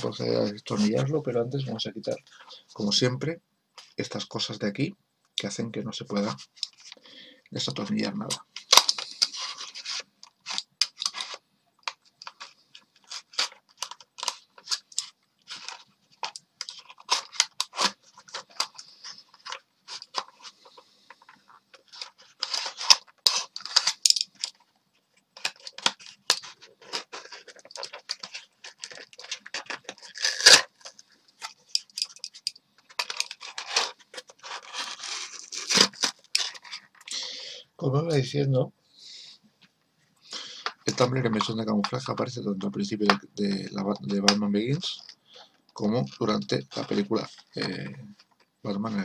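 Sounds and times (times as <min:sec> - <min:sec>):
cardboard and plastic tearing: 0:12.2 - 0:20.6, 0:21.8 - 0:24.6, 0:25.4 - 0:32.1, 0:32.9 - 0:37.0.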